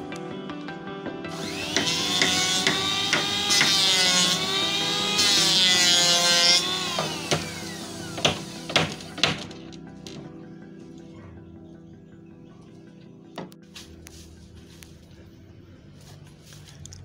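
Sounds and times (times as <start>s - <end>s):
circular saw cutting plywood: 1.3s - 9.6s.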